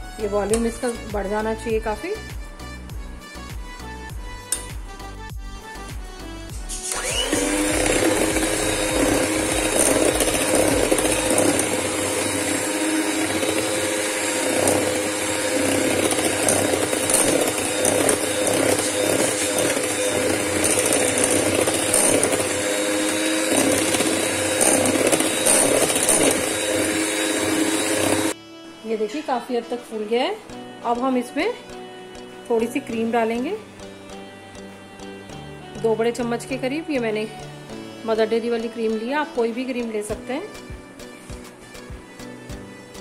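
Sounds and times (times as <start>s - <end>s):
electric hand mixer whipping: 6.6s - 28.4s.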